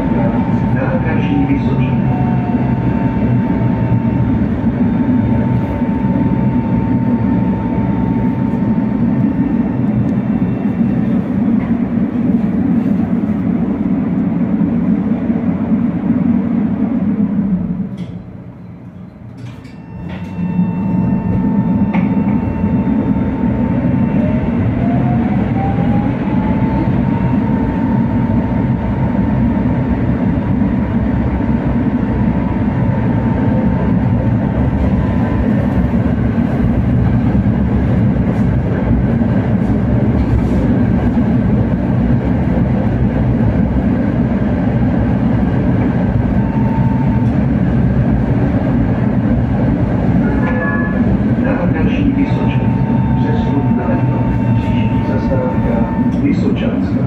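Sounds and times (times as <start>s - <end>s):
tram motor whine: 0.0s - 57.0s
tram wheels rumbling on rails: 0.0s - 57.0s.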